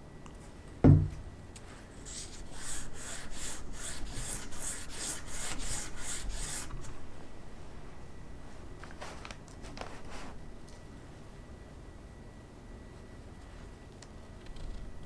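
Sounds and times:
thump: 0:00.8 - 0:01.2
sandpaper rasping on metal: 0:02.1 - 0:06.7.

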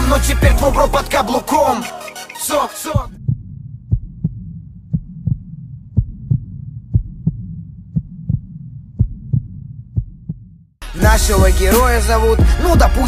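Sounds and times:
heartbeat double thump: 0:03.0 - 0:11.5.

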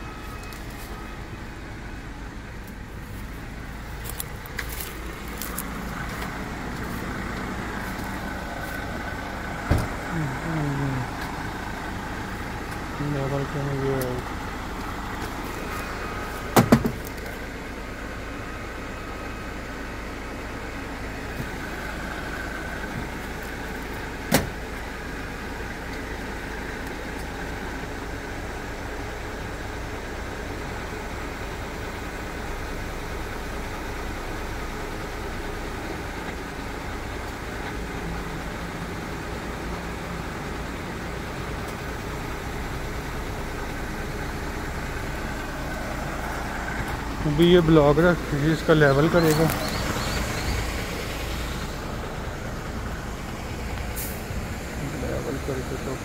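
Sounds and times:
diesel engine idling: 0:00.0 - 0:56.0
sharp knocks: 0:16.5 - 0:17.0.

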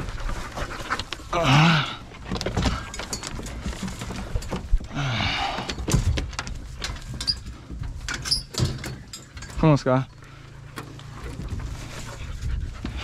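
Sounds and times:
dog claws clattering on metal: 0:05.8 - 0:10.9.

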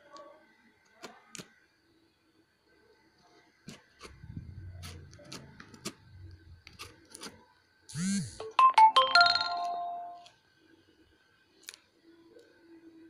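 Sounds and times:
electronic notification jingle: 0:08.4 - 0:10.2.

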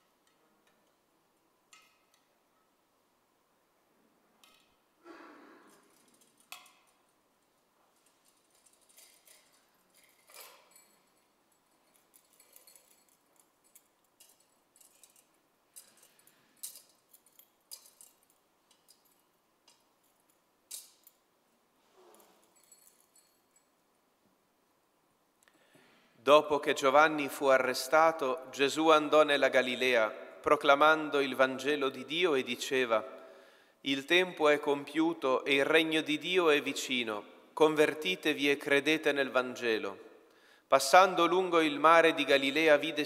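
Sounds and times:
sharp clicks and clinks: 0:08.0 - 0:21.3
soft rustle: 0:21.7 - 0:23.7.

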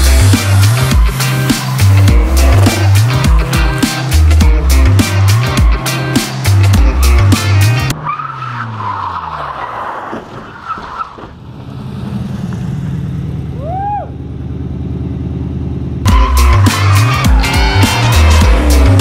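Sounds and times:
music: 0:00.0 - 0:08.0, 0:16.1 - 0:19.0
car engine idling: 0:11.4 - 0:19.0
tyres squealing: 0:16.1 - 0:19.0.

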